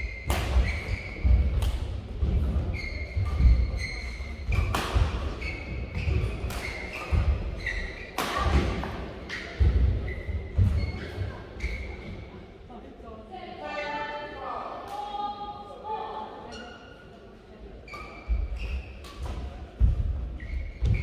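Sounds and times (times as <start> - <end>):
shoes squeaking on court: 0.0 - 12.3, 17.9 - 19.5, 20.3 - 21.0
racket striking shuttlecock: 0.2 - 1.9, 4.5 - 9.5
footwork thuds: 9.6 - 11.0.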